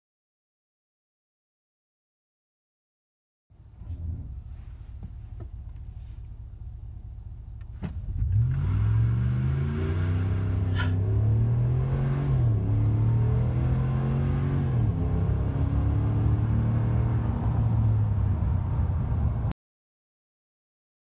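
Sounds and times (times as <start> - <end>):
pickup engine revving: 7.7 - 19.5.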